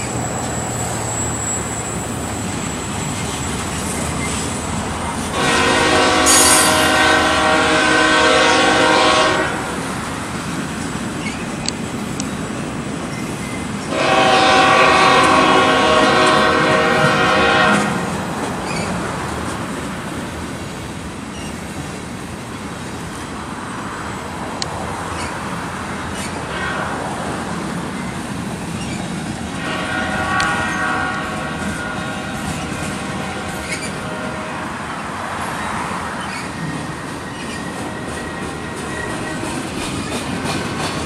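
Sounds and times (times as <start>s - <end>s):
freight train rolling and clattering: 0.0s - 41.0s
locomotive air horn: 5.3s - 9.8s, 13.9s - 18.2s, 26.5s - 27.1s, 29.6s - 34.8s.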